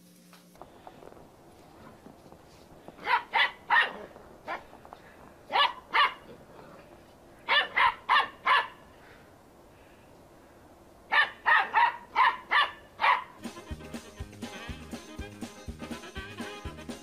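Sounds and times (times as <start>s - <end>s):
small dogs barking: 2.9s - 9.1s, 11.1s - 13.4s.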